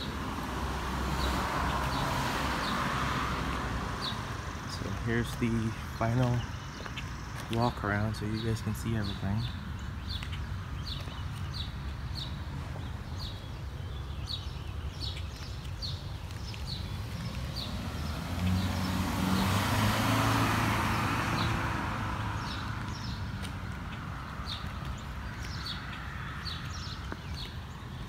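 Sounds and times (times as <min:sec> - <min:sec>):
car passing by: 0:00.0 - 0:05.2, 0:16.5 - 0:23.8
bird chirping: 0:03.9 - 0:20.4.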